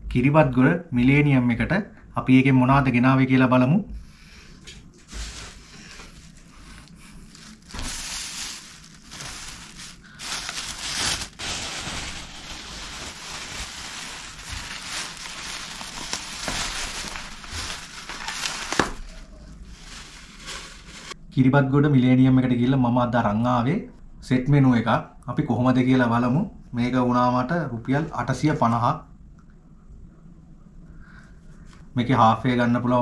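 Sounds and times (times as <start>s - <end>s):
plastic bag crinkling: 5.0s - 21.2s.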